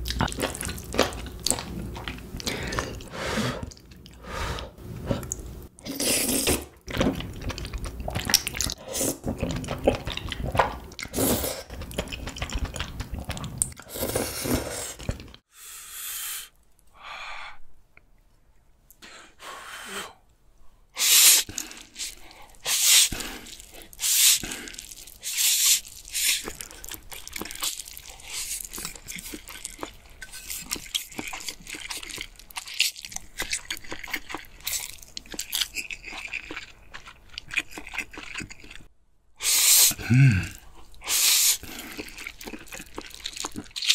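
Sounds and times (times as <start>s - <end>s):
noodles being chewed wetly: 0.0s - 4.2s, 6.8s - 15.4s, 21.4s - 38.9s, 39.9s - 43.9s
loud noodle slurps: 39.4s - 42.2s.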